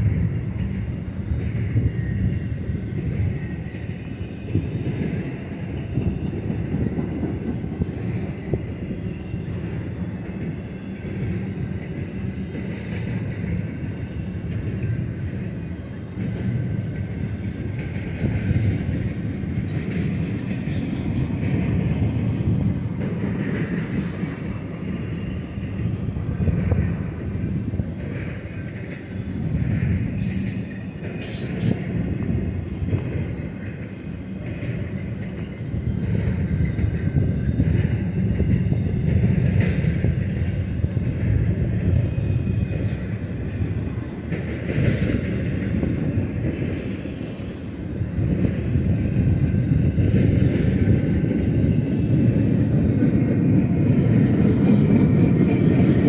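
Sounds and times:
freight train wheels rumbling: 0:00.0 - 0:56.0
wheel squeals: 0:19.7 - 0:21.2.

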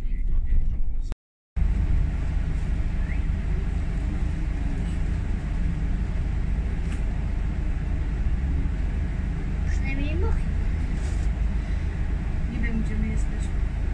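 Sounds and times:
low engine rumble: 0:00.0 - 0:13.9
city traffic noise: 0:01.6 - 0:13.9
faint rising chirp: 0:01.8 - 0:05.1.

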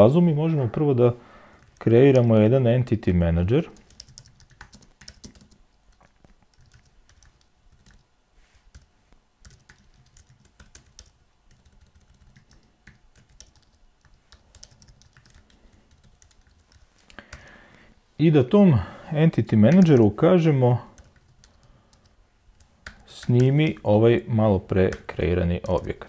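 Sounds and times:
typing on computer keyboard: 0:03.8 - 0:08.0, 0:08.7 - 0:17.5, 0:19.7 - 0:20.1, 0:21.0 - 0:23.8.

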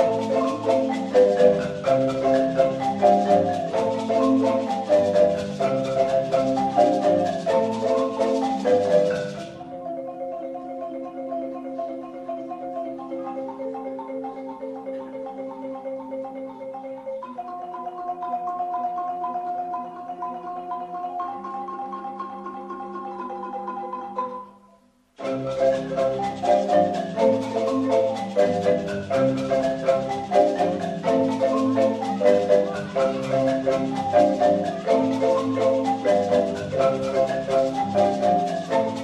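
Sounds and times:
marimba ensemble playing: 0:00.0 - 0:39.0.

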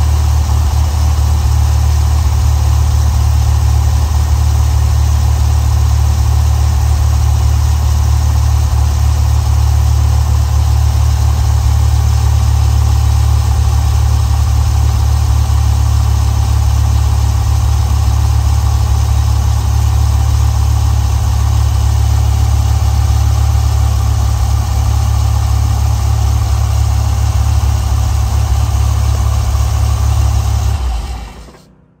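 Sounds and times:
car engine idling: 0:00.0 - 0:31.7.

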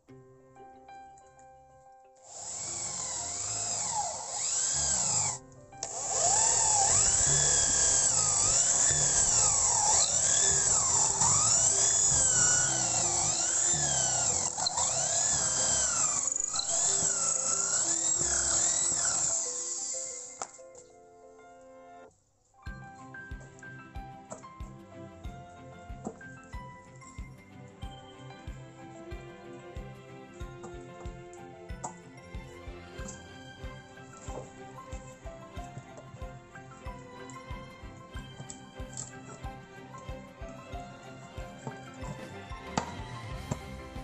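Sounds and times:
soft background music: 0:00.0 - 0:44.0
electric power tool whining: 0:02.2 - 0:20.8.

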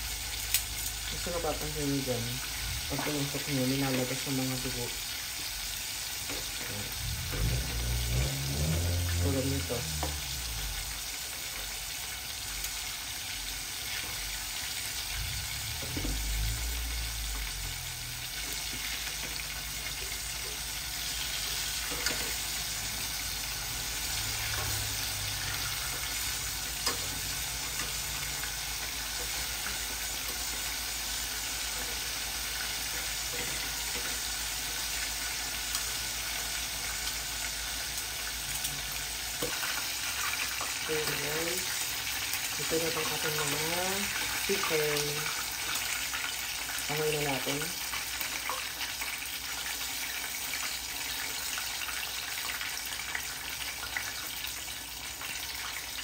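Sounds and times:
chicken sizzling in oil: 0:00.0 - 0:56.0.

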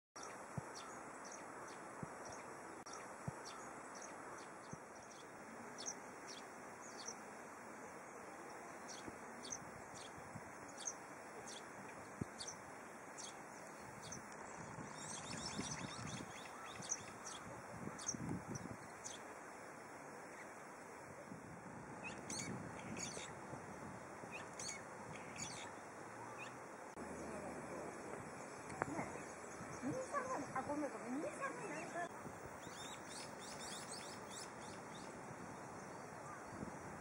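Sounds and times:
birds chirping: 0:00.2 - 0:20.8, 0:21.9 - 0:36.7
outdoor hiss: 0:00.2 - 0:37.0
wind noise on microphone: 0:08.9 - 0:10.8, 0:13.2 - 0:19.2, 0:21.0 - 0:25.7, 0:28.1 - 0:33.0, 0:33.6 - 0:37.0.

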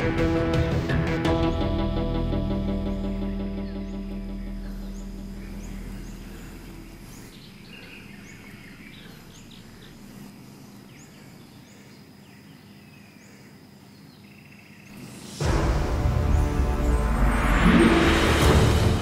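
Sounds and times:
small birds chirping: 0:01.3 - 0:15.2.

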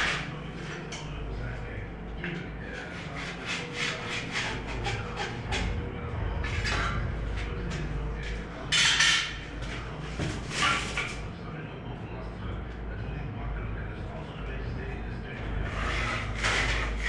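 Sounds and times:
low steady hum: 0:00.0 - 0:17.0
pencil scratching on concrete: 0:02.8 - 0:05.4
louder scrape: 0:15.6 - 0:17.0.

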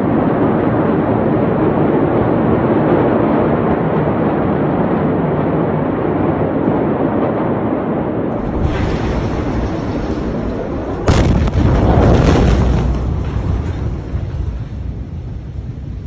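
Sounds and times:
steady low noise: 0:00.0 - 0:16.0
explosion boom with rumble: 0:08.3 - 0:16.0.

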